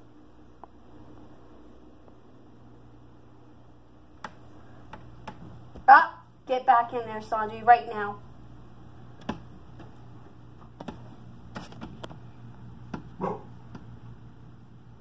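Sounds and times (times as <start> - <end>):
steady low hum: 0.0 - 15.0
light clicks and taps: 9.2 - 13.1.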